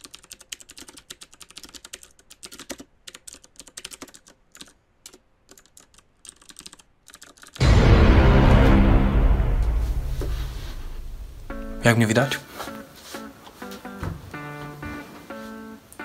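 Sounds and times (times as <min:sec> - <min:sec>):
loud music: 0:07.6 - 0:12.0.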